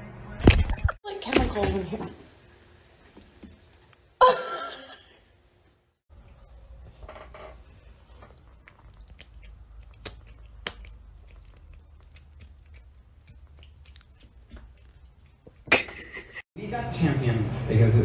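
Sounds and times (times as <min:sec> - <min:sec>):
cat chewing clicks and smacks: 0:08.3 - 0:15.6.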